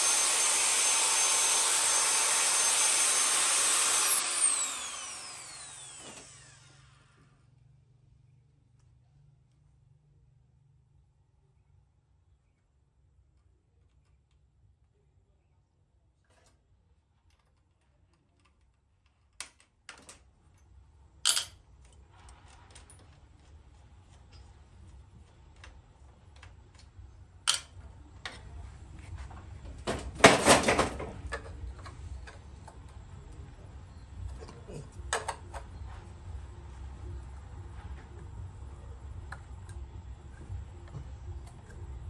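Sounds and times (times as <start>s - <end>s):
metal parts clicking and clinking: 17.2s - 22.0s.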